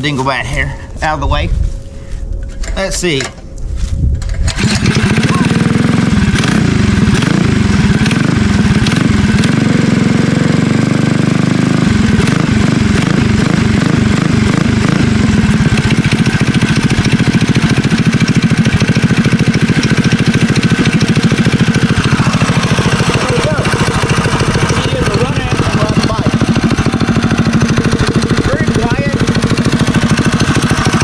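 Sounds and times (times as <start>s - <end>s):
small motorbike engine revving: 4.3s - 31.0s.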